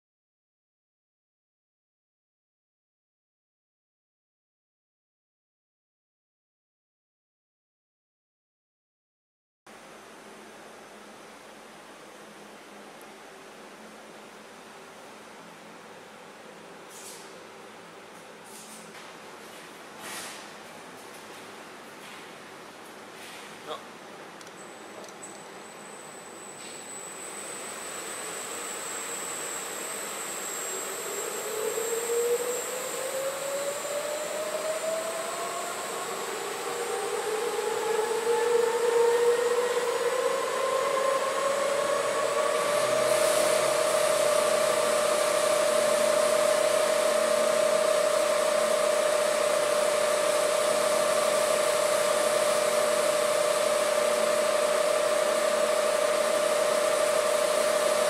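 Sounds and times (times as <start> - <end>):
industrial mixer whine: 24.5 - 58.0
mixer hiss: 26.6 - 34.6, 41.6 - 58.0.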